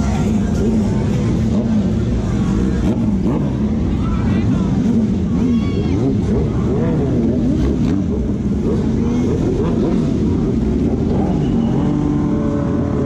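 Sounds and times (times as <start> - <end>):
motorcycles revving past: 4.7 - 13.0.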